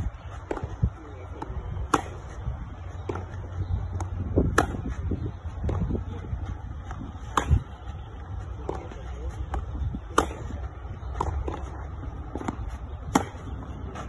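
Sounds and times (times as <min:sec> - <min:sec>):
tennis ball bouncing: 0:00.0 - 0:14.0
racket hitting tennis ball: 0:00.4 - 0:00.8, 0:01.4 - 0:02.4, 0:03.0 - 0:06.2, 0:06.8 - 0:07.9, 0:08.6 - 0:14.0
distant tennis ball strikes: 0:01.4 - 0:02.4, 0:03.0 - 0:05.0, 0:06.9 - 0:07.8, 0:08.6 - 0:14.0.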